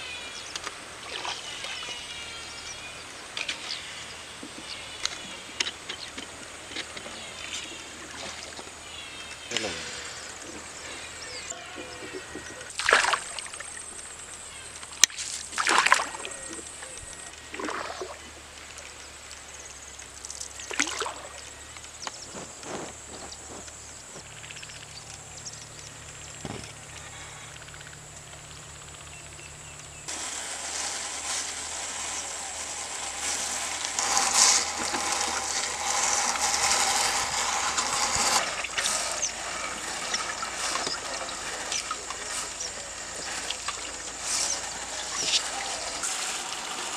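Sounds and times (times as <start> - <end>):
water splashing: 12.7 - 13.8.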